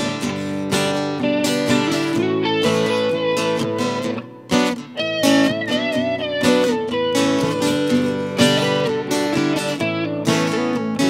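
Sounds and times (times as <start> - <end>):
acoustic guitar strumming: 0.0 - 11.0
electric guitar playing lead: 0.0 - 11.0.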